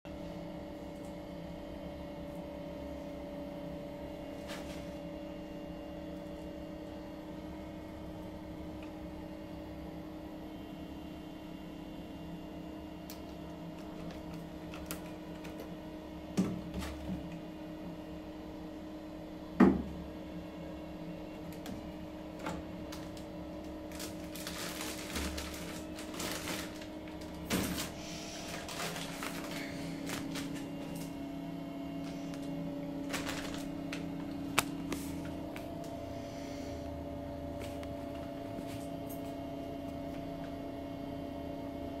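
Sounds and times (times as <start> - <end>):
steady electrical hum: 0.1 - 42.0.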